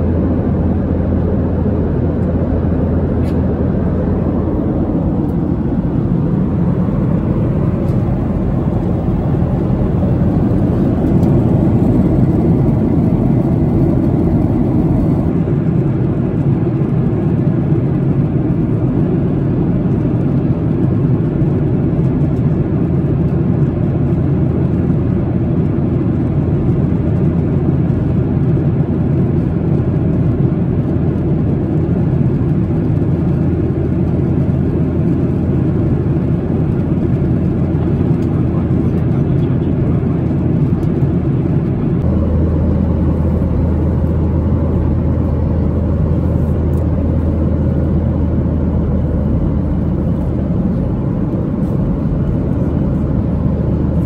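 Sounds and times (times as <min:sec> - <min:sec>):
airflow past fuselage: 0:00.0 - 0:16.8, 0:35.6 - 0:54.0
airplane cabin engine drone: 0:00.0 - 0:54.0.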